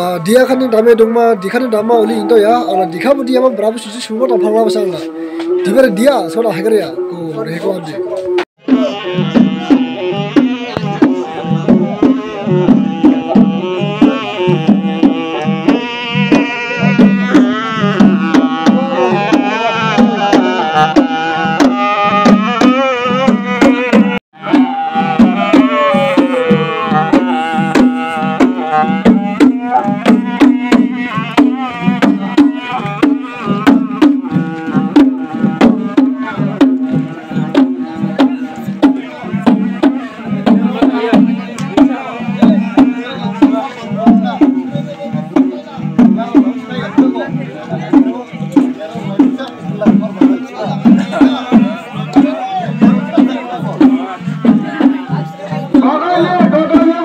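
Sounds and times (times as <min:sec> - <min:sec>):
wooden double-reed pipe melody: 0:00.0 - 0:57.0
hand drums beating: 0:08.0 - 0:57.0.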